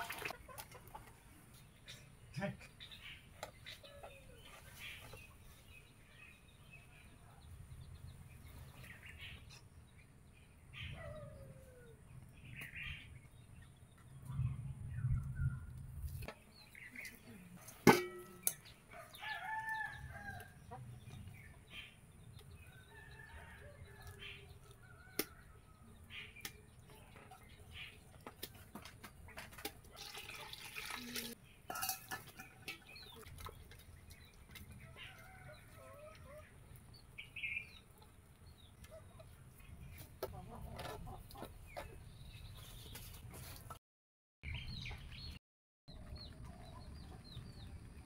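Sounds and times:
chickens clucking: 0.0 - 5.6, 37.8 - 43.5
metal plate knocking pot: 17.9 - 18.6, 31.7 - 33.0.

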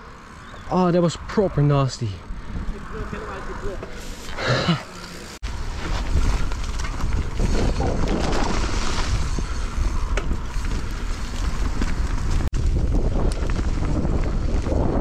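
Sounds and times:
wind buffeting microphone: 2.2 - 4.2, 5.4 - 15.0
tyre roar on dirt: 2.3 - 15.0.

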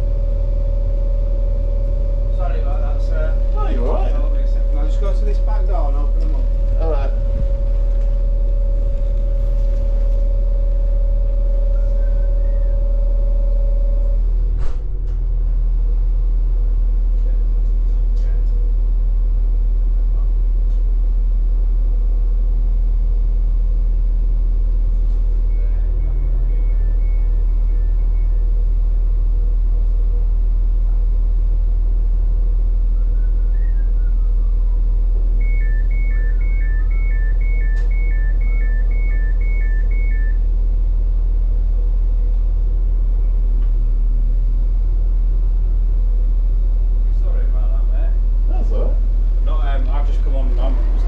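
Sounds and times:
train engine humming: 0.0 - 51.0
two-tone electronic beep: 6.8 - 14.2, 25.5 - 28.4, 35.4 - 40.4.

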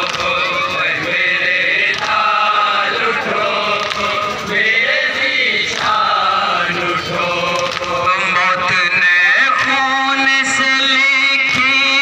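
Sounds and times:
men chanting a lament: 0.0 - 12.0
lead voice on a microphone: 6.6 - 12.0.

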